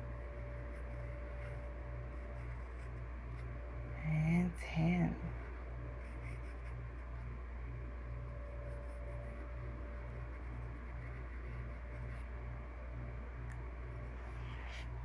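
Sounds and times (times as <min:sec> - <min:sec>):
pulsing low hum: 0:00.0 - 0:15.0
pencil scratching on paper: 0:00.7 - 0:03.5, 0:06.0 - 0:07.2, 0:10.1 - 0:12.3.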